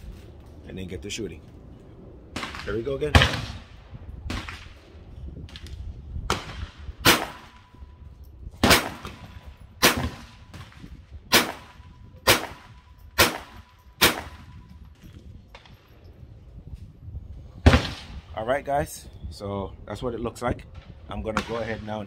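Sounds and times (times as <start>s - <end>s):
pistol shots: 6.3s - 7.7s, 8.6s - 14.5s.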